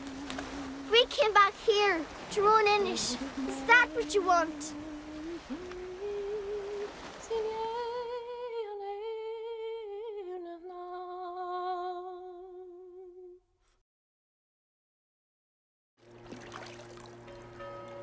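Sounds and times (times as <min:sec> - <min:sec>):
person humming slow tune: 0:00.0 - 0:01.0, 0:02.9 - 0:13.4.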